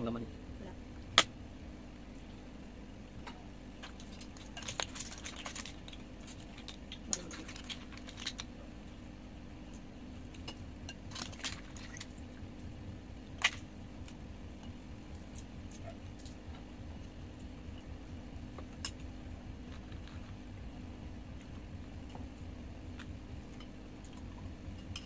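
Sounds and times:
steady low hum: 0.0s - 25.0s
shrimp shells cracking: 3.8s - 8.5s.

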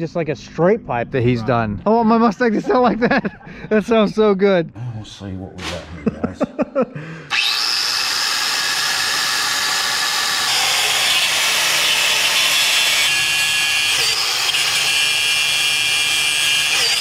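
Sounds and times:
electric grinder grinding metal: 7.3s - 17.0s.

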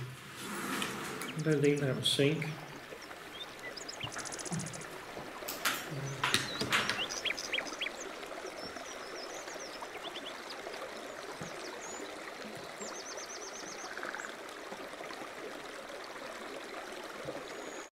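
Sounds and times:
steady outdoor hiss: 0.0s - 17.8s
small birds chirping: 1.2s - 14.4s.

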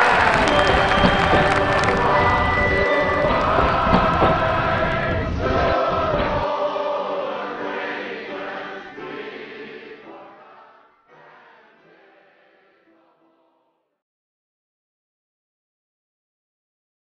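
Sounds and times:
noisy low rumble: 0.0s - 6.5s
choir singing: 0.0s - 13.8s.

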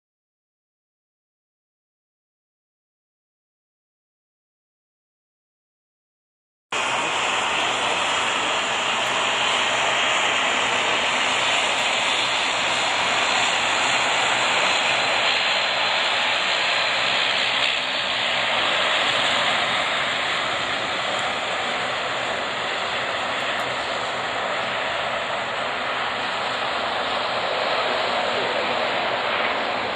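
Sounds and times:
jet engines whining: 6.7s - 29.9s.

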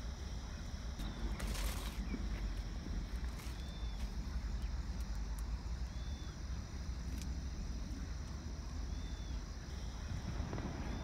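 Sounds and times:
wind rumble on microphone: 9.7s - 11.0s
smoke firework hissing: 9.8s - 11.0s.

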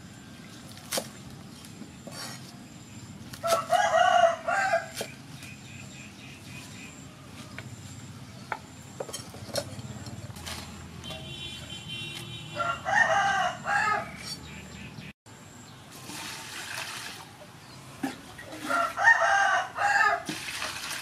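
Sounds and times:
rooster crowing: 3.4s - 4.9s, 12.5s - 14.2s, 18.6s - 20.2s
water poured into metal basin: 15.9s - 17.3s, 20.2s - 21.0s.

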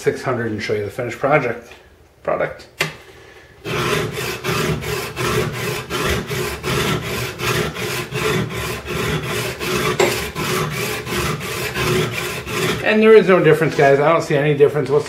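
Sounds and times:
chisel scraping on sharpening plate: 5.9s - 12.9s.

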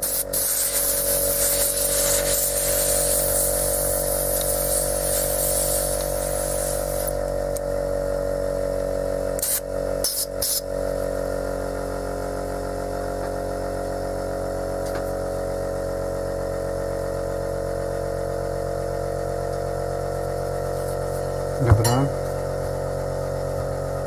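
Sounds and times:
compressed air blasts: 0.0s - 7.2s, 9.4s - 10.6s
air compressor running: 0.0s - 24.0s.

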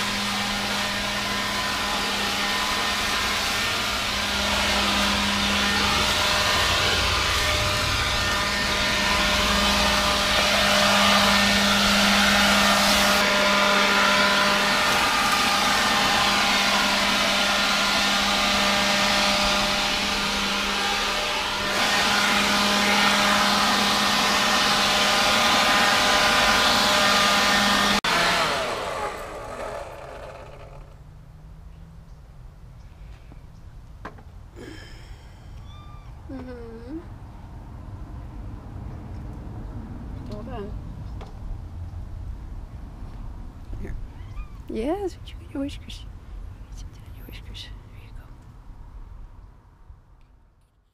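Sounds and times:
leaf blower running: 0.0s - 31.0s, 34.6s - 35.5s.

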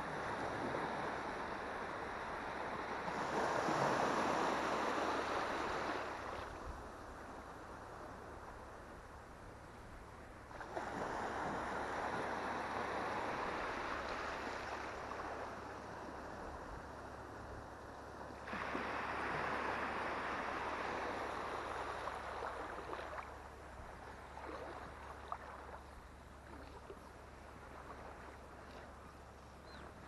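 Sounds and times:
seawater sloshing and splashing: 24.2s - 29.1s.

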